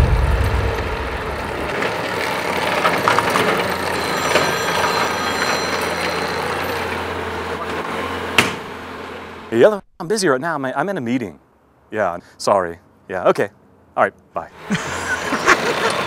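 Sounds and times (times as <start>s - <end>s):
loader engine humming: 0.0s - 9.7s, 14.6s - 16.0s.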